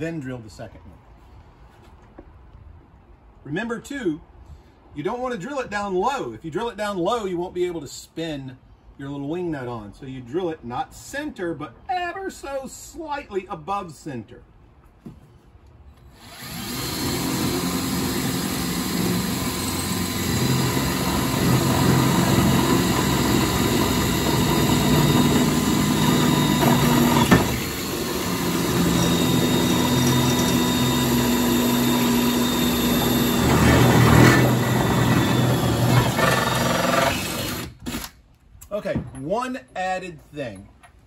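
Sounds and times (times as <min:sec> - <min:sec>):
electric drill boring metal: 0:16.2 - 0:38.0.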